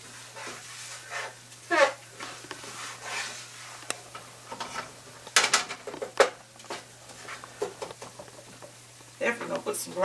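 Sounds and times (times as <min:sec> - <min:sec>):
spatula scraping a skillet: 0:00.0 - 0:03.9.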